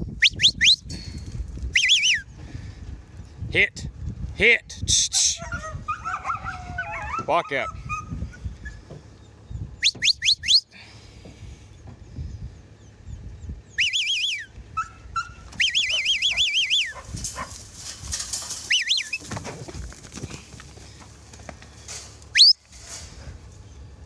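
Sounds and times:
whistle commands: 0:00.2 - 0:00.9, 0:01.7 - 0:02.3, 0:09.8 - 0:10.7, 0:13.7 - 0:14.5, 0:15.5 - 0:17.0, 0:18.6 - 0:19.3, 0:22.3 - 0:22.6
hooves and paws scuffling in dirt: 0:05.4 - 0:10.1, 0:10.9 - 0:24.0.

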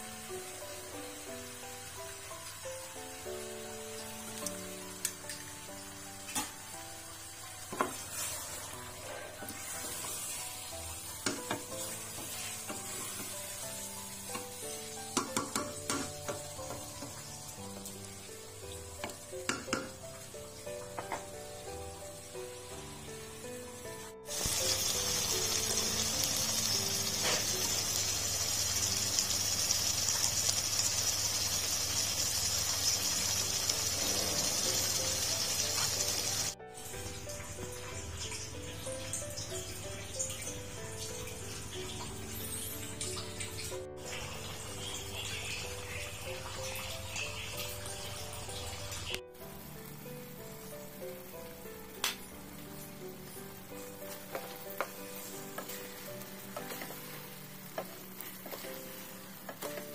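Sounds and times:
food sizzling in a pot: 0:00.0 - 0:59.9
soft background music: 0:00.0 - 0:59.9
spatula knocking and scraping pot: 0:15.1 - 0:17.1, 0:19.0 - 0:20.0.

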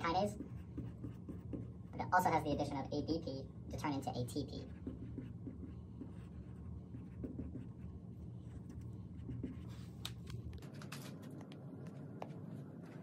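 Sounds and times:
low steady hum: 0:00.0 - 0:13.0
marker squeaking on whiteboard: 0:04.6 - 0:07.9.

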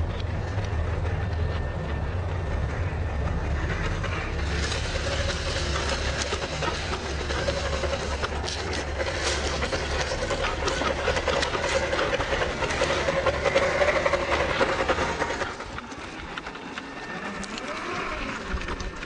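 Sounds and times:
electric motor whining: 0:00.0 - 0:19.0
tyres crunching over stones: 0:04.1 - 0:16.0.

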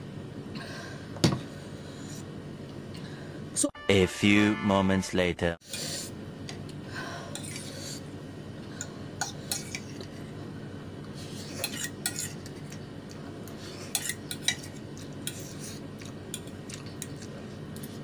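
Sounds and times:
cutlery scraping and clinking on plate: 0:07.4 - 0:08.0, 0:11.4 - 0:12.7, 0:13.8 - 0:15.8.

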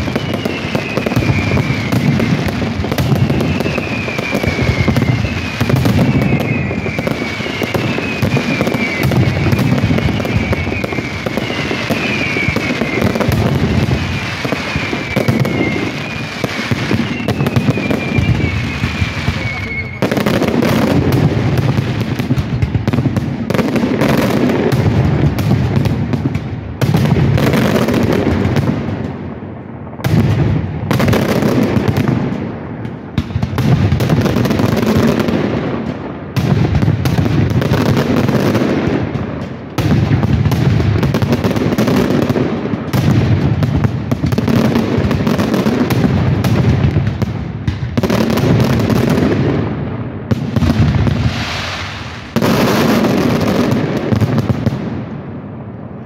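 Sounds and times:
fireworks bursting and crackling: 0:00.0 - 0:56.0.

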